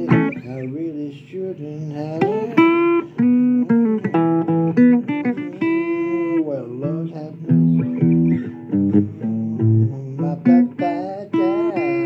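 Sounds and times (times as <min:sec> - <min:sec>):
blues guitar playing: 0:00.0 - 0:01.1, 0:01.8 - 0:12.0.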